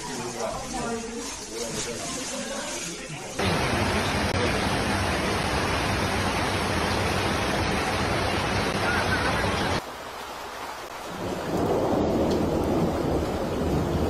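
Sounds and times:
deep rush of flowing water: 0:03.4 - 0:13.7
heavy rain hiss: 0:03.4 - 0:14.0.

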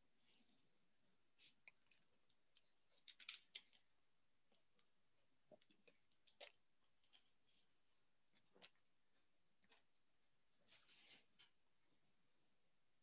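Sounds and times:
faint small clicks and taps: 0:05.5 - 0:07.7.

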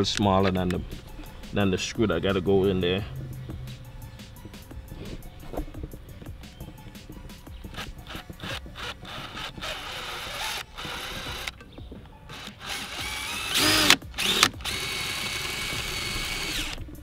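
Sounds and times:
cordless drill motor drilling: 0:07.8 - 0:11.5, 0:12.3 - 0:16.8.

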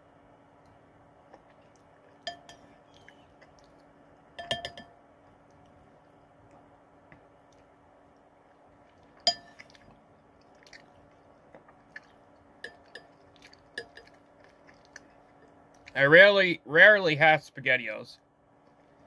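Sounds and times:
quiet chewing: 0:00.5 - 0:04.4, 0:05.1 - 0:16.0, 0:18.5 - 0:19.0
spoon clinking against dish: 0:02.2 - 0:02.8, 0:04.4 - 0:05.0, 0:09.2 - 0:09.7, 0:12.6 - 0:13.2, 0:13.8 - 0:14.2.

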